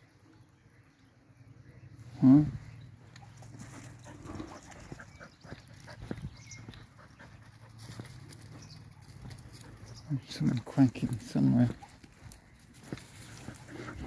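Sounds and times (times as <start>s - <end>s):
dog panting: 3.0s - 10.1s, 11.2s - 14.0s
footsteps on gravel: 3.0s - 14.0s.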